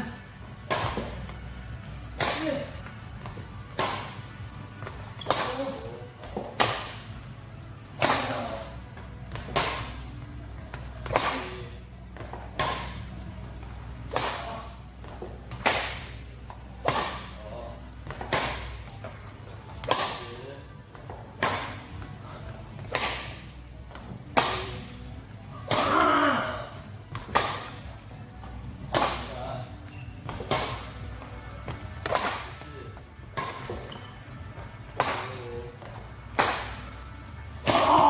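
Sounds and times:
racket hitting shuttlecock: 0:00.6 - 0:01.2, 0:03.7 - 0:04.2, 0:05.2 - 0:07.1, 0:09.4 - 0:10.0, 0:11.0 - 0:11.5, 0:14.1 - 0:16.2, 0:16.8 - 0:17.3, 0:19.8 - 0:20.3, 0:21.4 - 0:21.8, 0:22.8 - 0:23.4, 0:27.1 - 0:27.8, 0:30.3 - 0:31.0, 0:32.0 - 0:32.6, 0:36.4 - 0:36.8.

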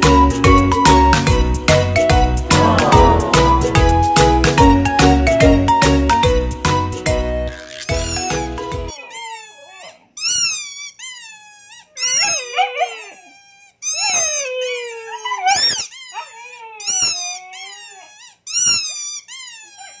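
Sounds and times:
dogs howling: 0:02.5 - 0:04.2.

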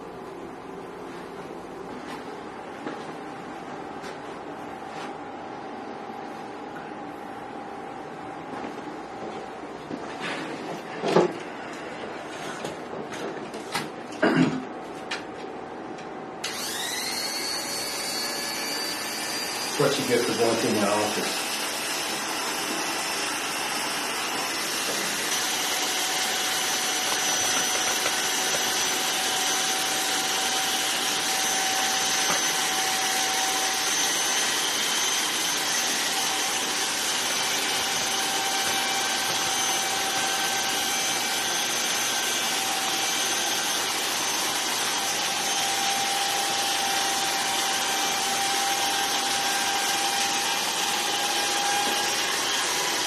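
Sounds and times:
electric hair clippers buzzing: 0:16.4 - 0:53.0.

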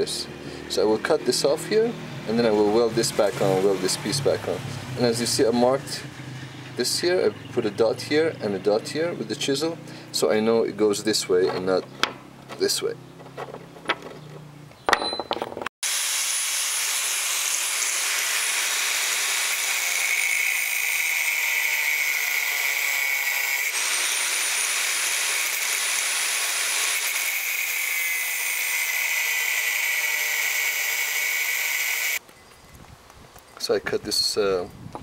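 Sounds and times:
angle grinder cutting steel: 0:01.1 - 0:05.8, 0:15.8 - 0:32.2.

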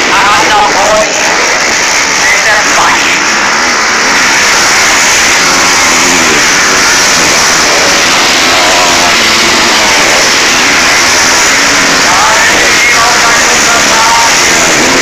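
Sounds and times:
motocross bikes revving past: 0:00.0 - 0:15.0.

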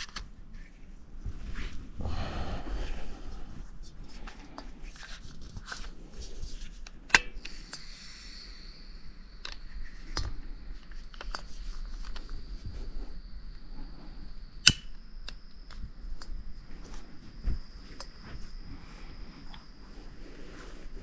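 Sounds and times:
small clicks and rustling: 0:03.8 - 0:07.9, 0:09.4 - 0:12.9
sharp snaps: 0:14.5 - 0:16.4.

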